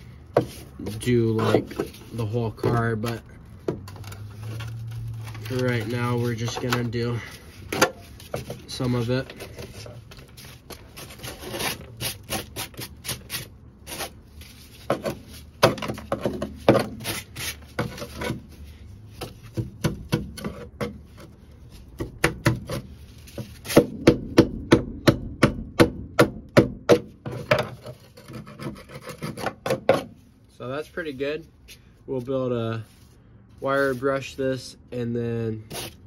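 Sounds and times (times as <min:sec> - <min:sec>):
scraper scraping metal: 0:03.8 - 0:18.6, 0:27.3 - 0:30.1.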